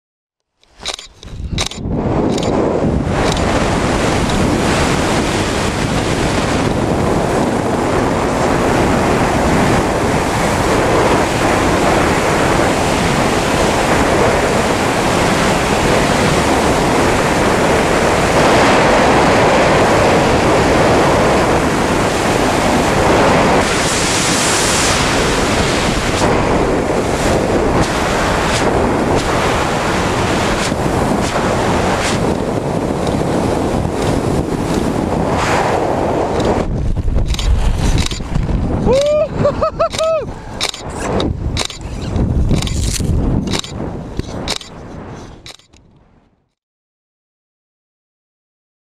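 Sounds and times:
wind rushing over microphone: 0.6s - 46.5s.

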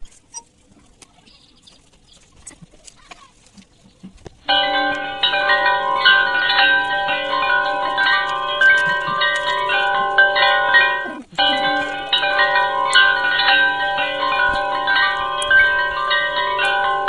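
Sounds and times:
sustained chime-like music: 4.5s - 17.0s.

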